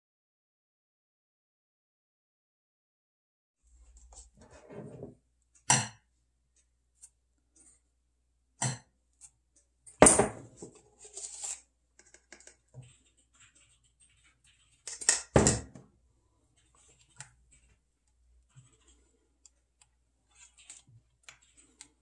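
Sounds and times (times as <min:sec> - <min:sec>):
dishes knocking and clinking: 0:10.0 - 0:10.7, 0:14.9 - 0:15.8.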